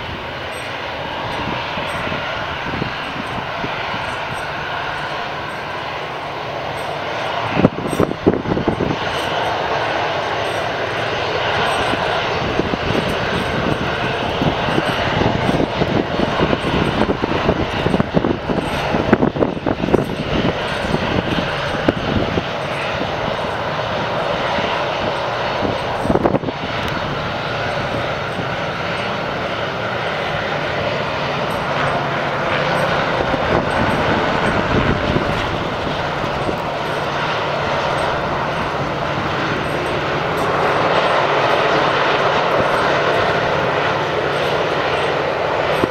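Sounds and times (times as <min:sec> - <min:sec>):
jet engine rumble: 0:00.0 - 0:45.9.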